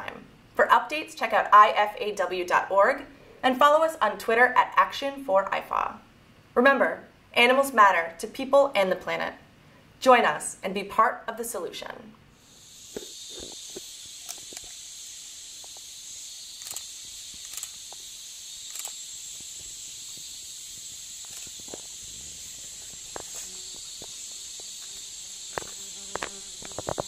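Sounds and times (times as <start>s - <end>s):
insect chorus drone: 12.4s - 27.0s
small clicks: 12.9s - 14.8s, 15.6s - 22.0s.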